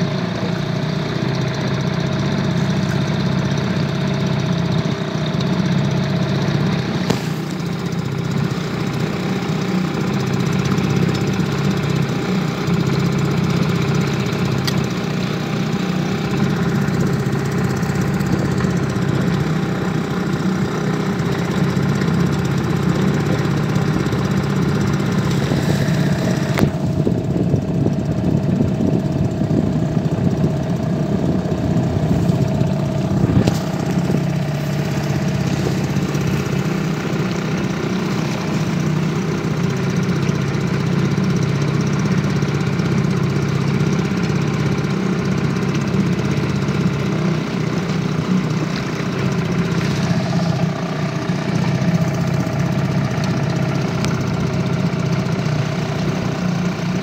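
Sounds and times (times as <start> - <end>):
outboard motor running: 0.0 - 57.0.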